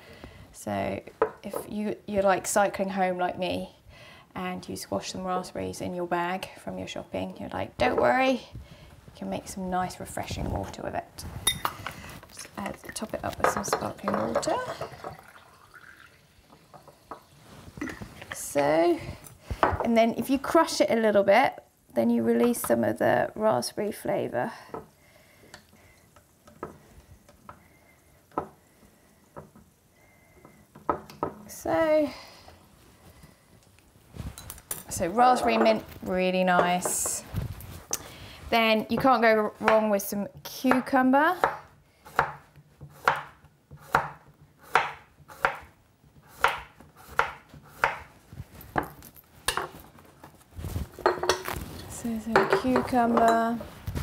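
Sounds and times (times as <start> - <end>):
knife slicing cucumber on board: 41.4 - 48.1.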